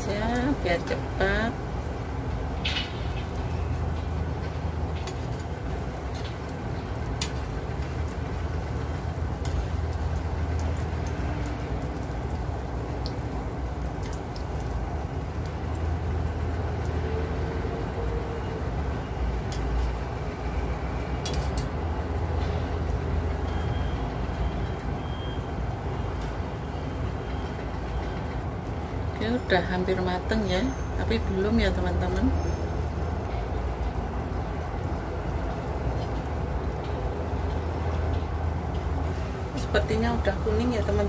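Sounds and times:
oil popping and crackling: 0:00.0 - 0:29.2
dough frying in hot oil: 0:00.0 - 0:41.0.

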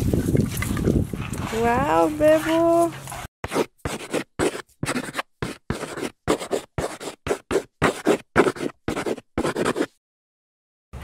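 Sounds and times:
chalk scratching on chalkboard: 0:01.5 - 0:10.0.

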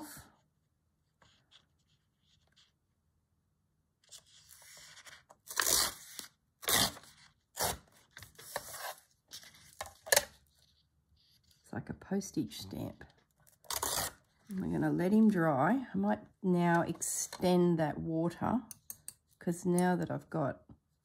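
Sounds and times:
paper tearing: 0:04.1 - 0:10.2, 0:13.6 - 0:14.3.

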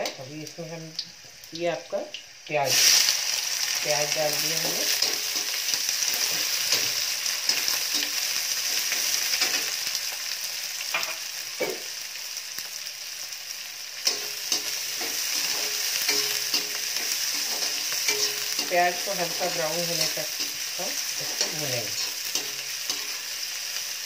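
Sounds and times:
onions sizzling in hot oil: 0:00.0 - 0:24.0
spatula scraping and tapping pan: 0:04.7 - 0:08.2, 0:14.1 - 0:18.9, 0:21.2 - 0:23.2.

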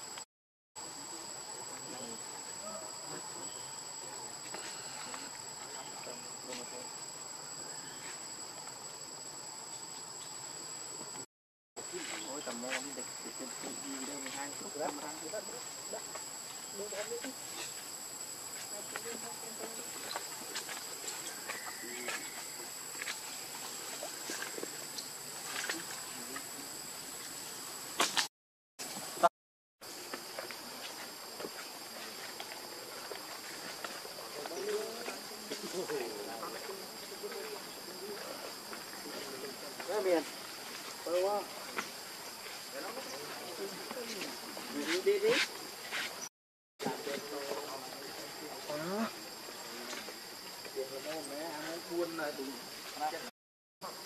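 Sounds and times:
insects droning: 0:00.8 - 0:54.0
high-pitched insect drone: 0:12.0 - 0:28.0.

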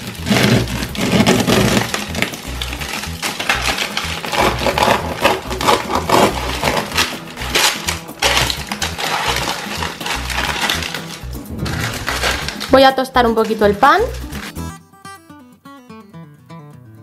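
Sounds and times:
background music: 0:00.0 - 0:17.0
knife sawing through bread crust: 0:00.2 - 0:11.0.

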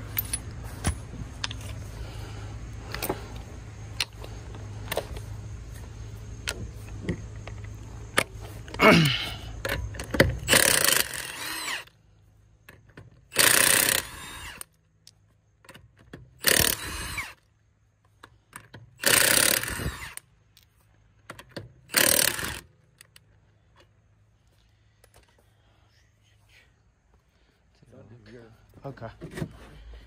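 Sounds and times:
impact wrench bursts: 0:09.6 - 0:11.9, 0:13.2 - 0:14.7, 0:16.4 - 0:17.4, 0:19.0 - 0:20.3, 0:21.8 - 0:22.8.

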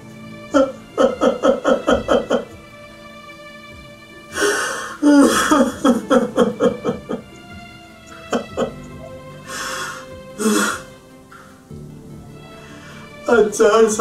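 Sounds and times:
soft background music: 0:00.0 - 0:14.0
man sobbing: 0:00.6 - 0:02.5, 0:05.0 - 0:07.3
sharp intake of breath: 0:04.3 - 0:05.6, 0:09.4 - 0:11.0, 0:12.6 - 0:13.2.

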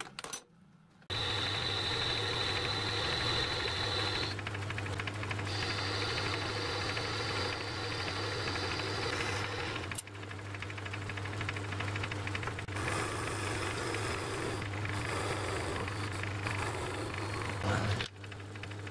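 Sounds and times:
metal lathe motor hum: 0:01.1 - 0:18.9.

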